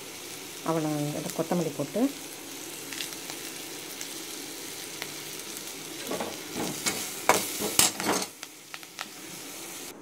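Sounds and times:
vegetables sizzling in a pan: 0.0s - 10.0s
spoon scraping and knocking a pan: 6.0s - 8.4s.

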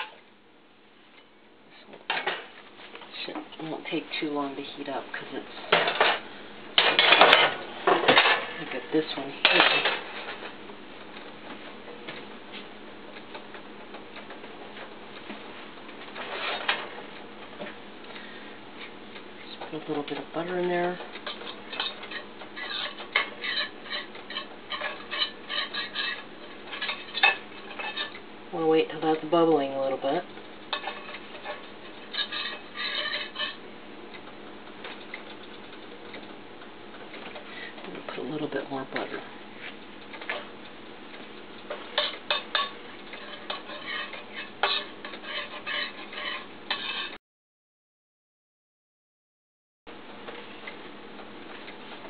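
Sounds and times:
utensil scraping a steel skillet: 20.4s - 28.2s, 29.7s - 33.6s, 41.6s - 47.2s.

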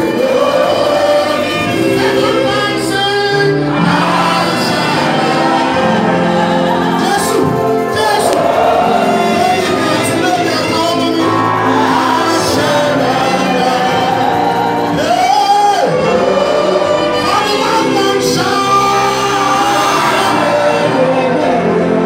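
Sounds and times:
group singing gospel music: 0.0s - 22.0s.

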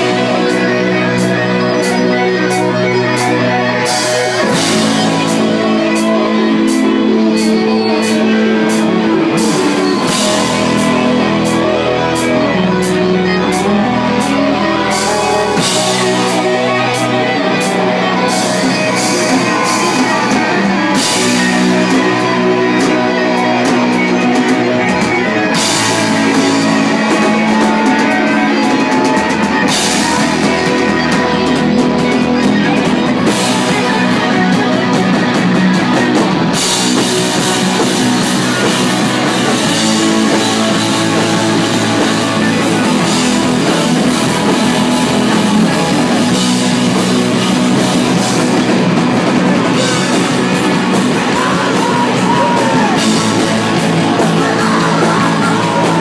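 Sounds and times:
drum kit: 0.0s - 56.0s
electric guitars: 0.0s - 56.0s.

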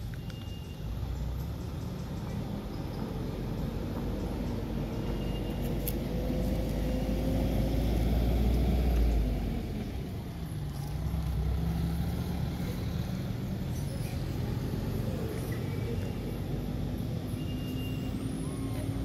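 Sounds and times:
vehicle engine rumbling past: 0.9s - 19.0s.

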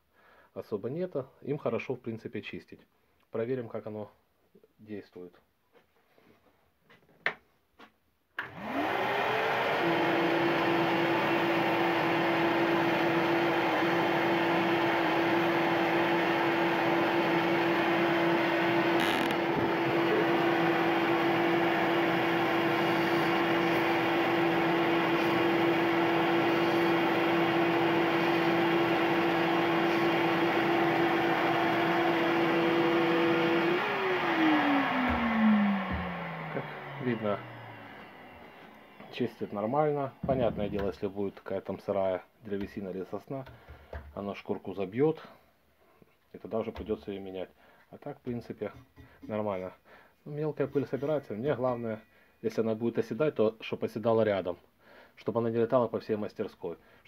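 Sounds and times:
sander motor hum: 8.4s - 41.2s
rushing sanding belt: 16.6s - 38.4s.

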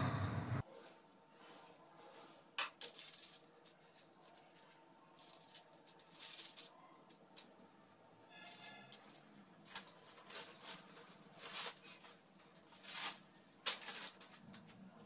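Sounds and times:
foil rustling: 2.0s - 6.8s, 8.3s - 14.8s.

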